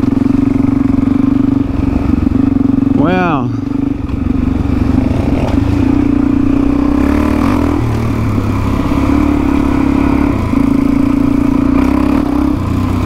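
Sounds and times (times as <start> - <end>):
dirt bike engine running: 0.0 - 13.0.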